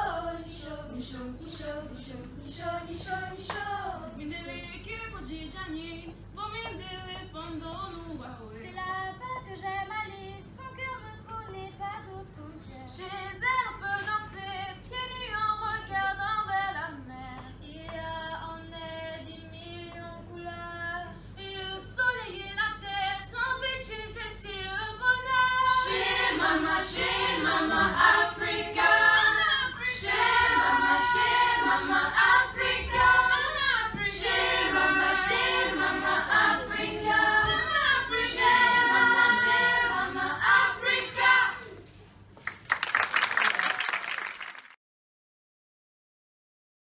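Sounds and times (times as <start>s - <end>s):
youth choir singing: 0.0s - 4.1s, 24.7s - 41.8s.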